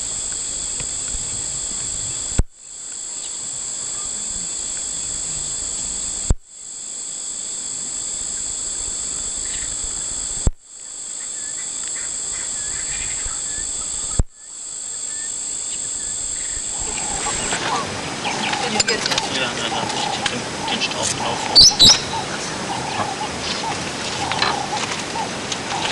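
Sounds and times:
shrill insect chorus: 0.0 - 25.9
sharp click: 9.5 - 10.6, 14.1 - 14.3.

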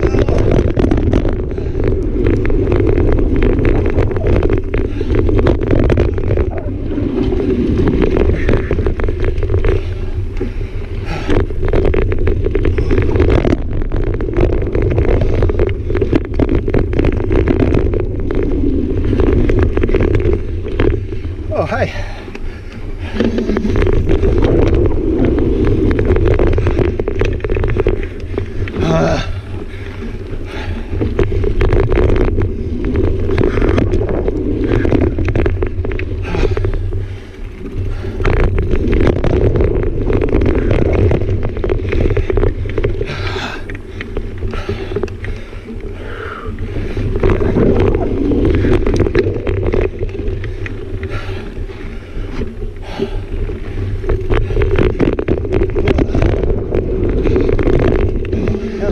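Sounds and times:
bike clicks and rattles: 0.0 - 58.9
tyres rolling over dirt: 0.0 - 58.9
wind buffeting microphone: 0.0 - 58.9.

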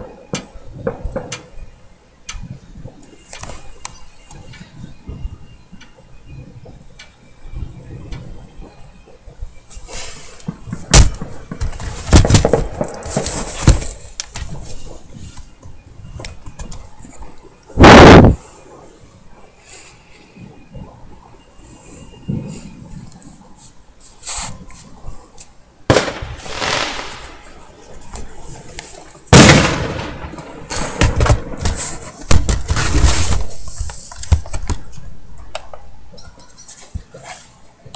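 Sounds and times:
fireworks bangs: 0.0 - 1.7, 7.5 - 18.8, 25.9 - 35.9
fireworks pops and crackle: 0.0 - 18.5, 22.1 - 37.9.

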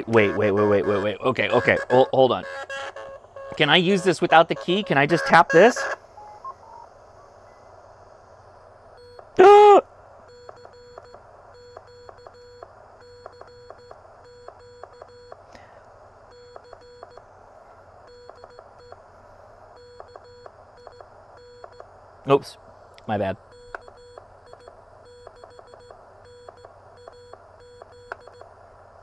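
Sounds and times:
morse code sidetone beeps: 0.2 - 6.8, 10.3 - 15.4, 16.3 - 17.2, 18.1 - 19.0, 19.8 - 21.8, 23.5 - 28.4.

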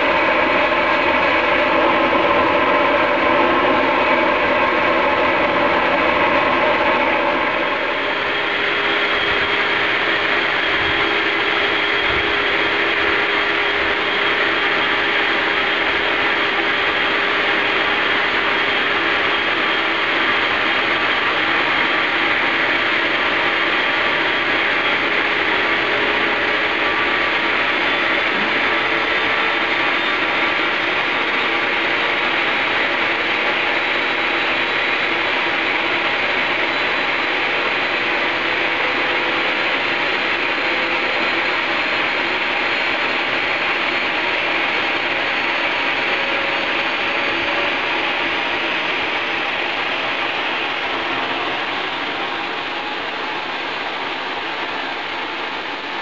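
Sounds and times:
jet engine roaring with whine: 0.0 - 56.0.

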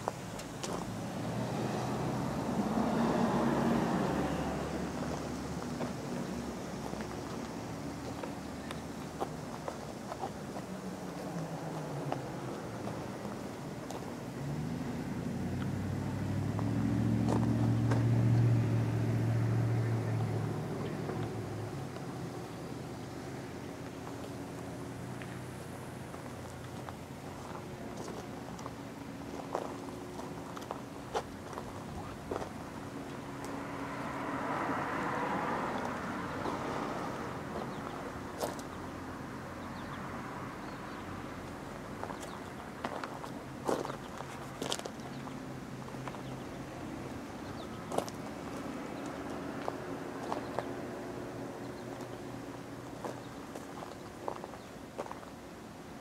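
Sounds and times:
footsteps on gravel: 0.0 - 0.9, 17.3 - 18.0, 23.8 - 32.6, 42.0 - 46.4, 47.5 - 50.7, 53.0 - 55.2
vehicle engine passing by: 0.7 - 8.9, 10.5 - 55.1.

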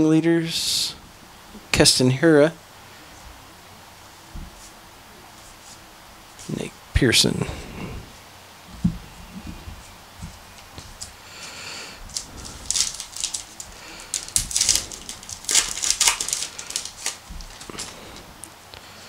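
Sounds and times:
card pack wrapper tearing and crinkling: 12.1 - 18.3.

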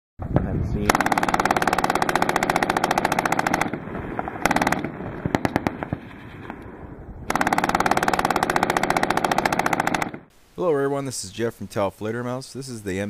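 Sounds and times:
machine gun firing bursts: 0.9 - 6.2, 7.3 - 10.3.

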